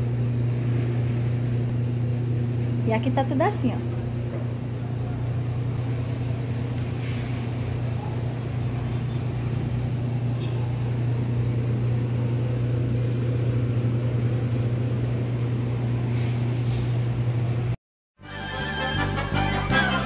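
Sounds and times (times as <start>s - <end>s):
low machine hum: 0.0s - 17.8s.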